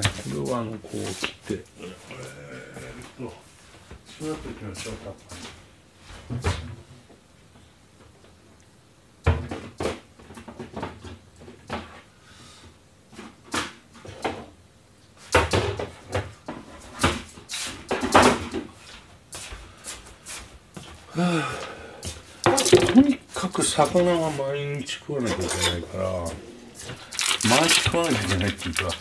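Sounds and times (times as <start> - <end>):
kitchen utensils knocking and clunking: 22.5 - 23.2, 25.3 - 25.8.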